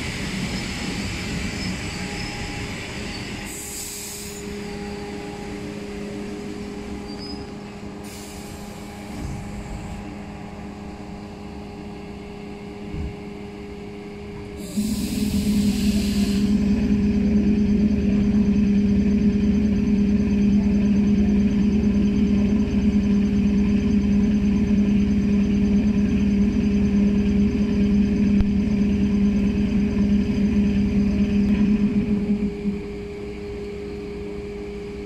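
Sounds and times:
train machinery humming: 0.0 - 35.0
air hiss: 3.5 - 4.4, 14.6 - 16.6.

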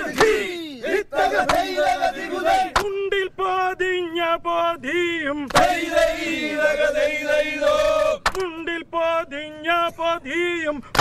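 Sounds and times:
men singing call and response: 0.0 - 11.0
sharp hand clap: 0.1 - 0.4, 1.4 - 1.7, 2.7 - 2.9, 5.5 - 5.7, 8.2 - 8.5.

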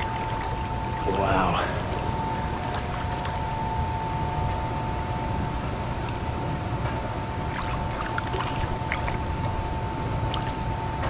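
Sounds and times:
fish splashing in a net: 7.5 - 9.2.

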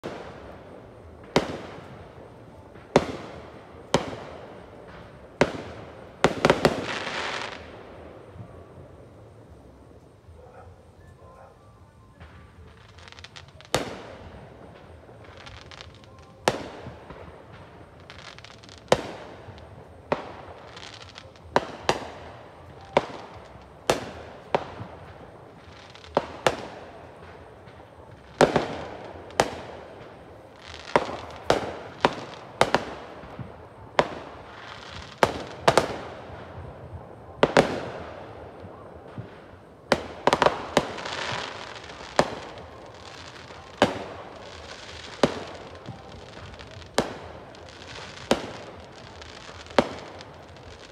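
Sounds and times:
distant fireworks bangs: 0.0 - 50.9.

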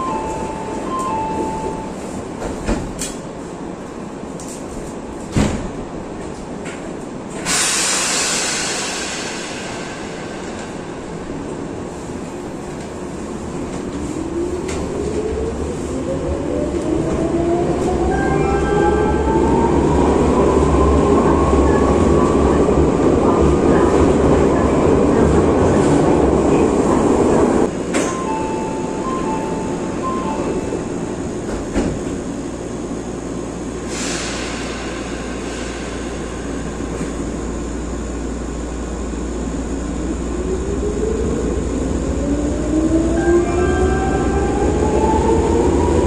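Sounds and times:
train running through tunnel: 0.0 - 46.0
air hiss: 7.4 - 12.3, 33.8 - 37.4.

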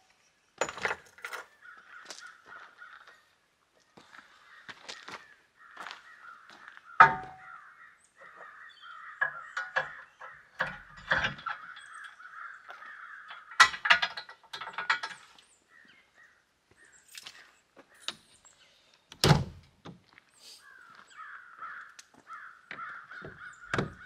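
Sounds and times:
birds chattering: 1.4 - 19.1, 20.2 - 24.0
spare tire carrier clicking and latching: 9.2 - 11.8, 13.3 - 15.2.

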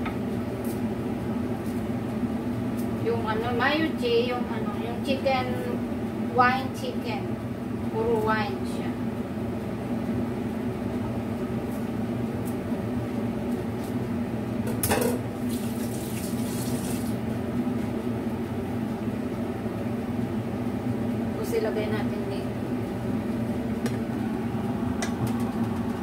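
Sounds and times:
sink tap running: 15.5 - 17.2.

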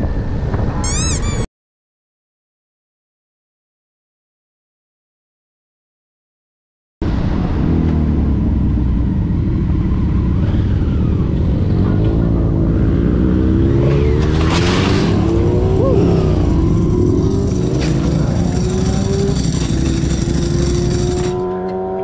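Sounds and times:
motorcycle engines revving: 7.1 - 22.0.

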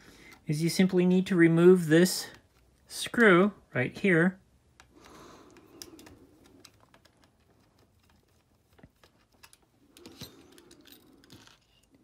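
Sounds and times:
small parts clicking: 4.8 - 12.0.

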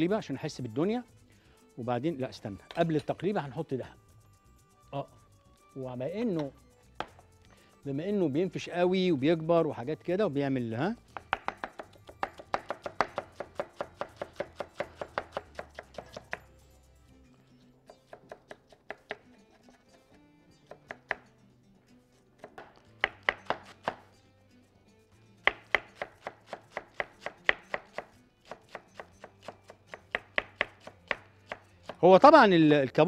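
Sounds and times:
knife chopping on wooden board: 6.4 - 7.2, 11.1 - 16.5, 17.8 - 20.1, 20.7 - 21.3, 22.4 - 24.1, 25.4 - 32.0.

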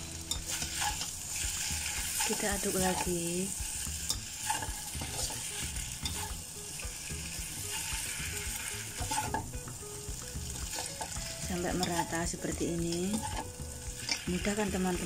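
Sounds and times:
light frying sizzle: 0.0 - 15.0
spatula clacking on wok: 3.7 - 12.2.

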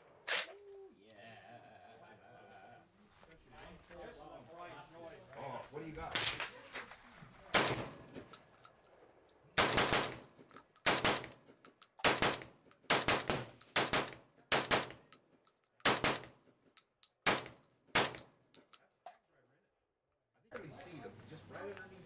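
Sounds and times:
shotgun shots: 7.5 - 8.3, 9.6 - 10.3, 10.9 - 11.4, 12.0 - 15.0, 15.8 - 16.3, 17.2 - 18.3.

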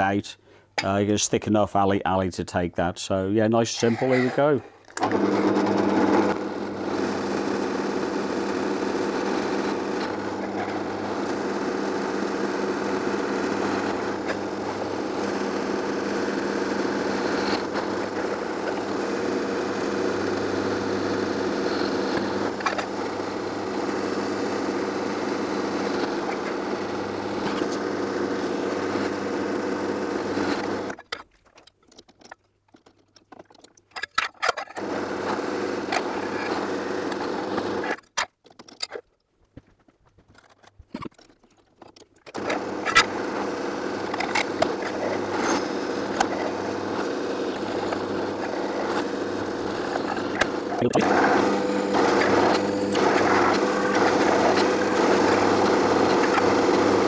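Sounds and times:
drill motor humming: 3.8 - 31.0, 34.8 - 38.0, 42.4 - 57.0.

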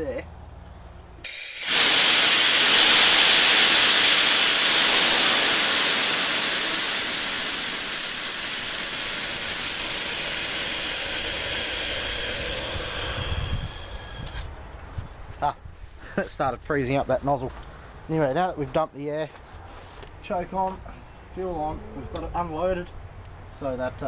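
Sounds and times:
compressed air hissing: 1.2 - 14.5.

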